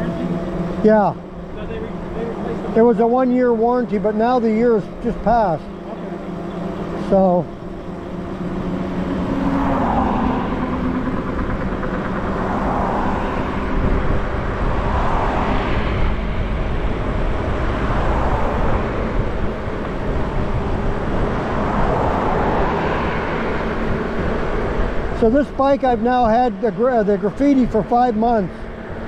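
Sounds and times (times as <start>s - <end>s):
road traffic passing: 0.0s - 29.0s
wind buffeting microphone: 5.3s - 29.0s.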